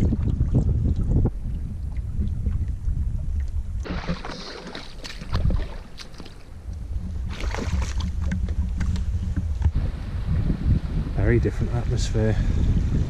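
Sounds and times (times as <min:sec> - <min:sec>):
wind buffeting microphone: 0:00.0 - 0:13.0
knocks and scrapes on stony shore: 0:03.8 - 0:10.1.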